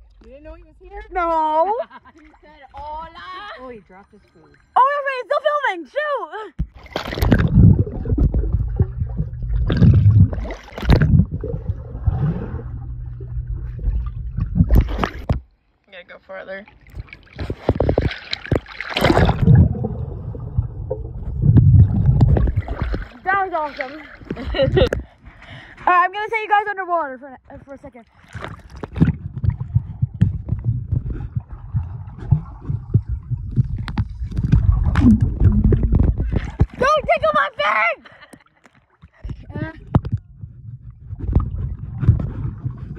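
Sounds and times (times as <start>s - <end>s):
bubbles and churning water: 6.6s - 15.6s, 16.7s - 25.7s, 28.0s - 42.9s
muffled underwater rush: 6.7s - 15.4s, 16.8s - 25.7s, 28.3s - 37.5s, 39.0s - 42.9s.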